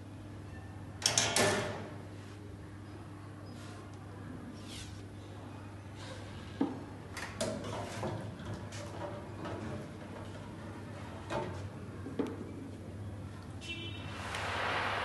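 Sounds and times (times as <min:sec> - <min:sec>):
steady low hum: 0:14.0 - 0:15.0.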